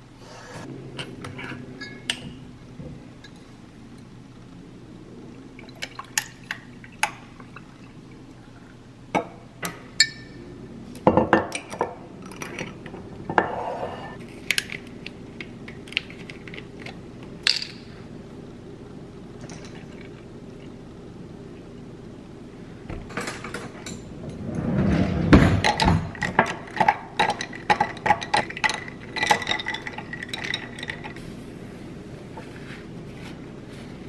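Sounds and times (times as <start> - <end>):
glass and bottle clinking: 1.8 - 2.3, 9.2 - 10.4, 27.2 - 31.2
ice clinking: 25.6 - 31.2.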